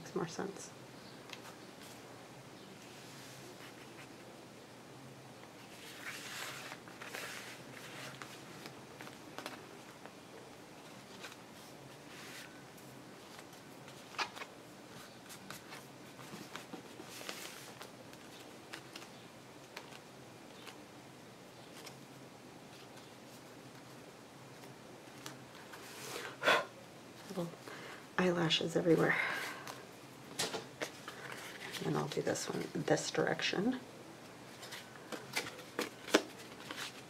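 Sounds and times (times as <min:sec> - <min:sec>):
paper rustling and scraping: 0:05.6 - 0:09.6, 0:13.2 - 0:19.1, 0:30.8 - 0:32.8, 0:34.5 - 0:37.0.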